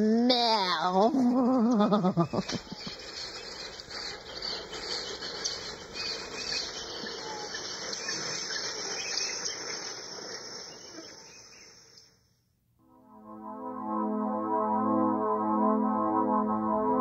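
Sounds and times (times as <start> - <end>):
creatures chittering and squeaking: 1.8 - 11.8.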